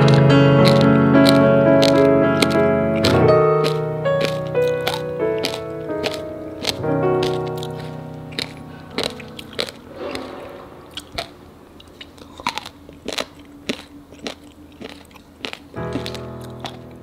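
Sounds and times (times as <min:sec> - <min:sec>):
background music: 0:00.0 - 0:11.4
crunching and chewing: 0:00.0 - 0:17.0.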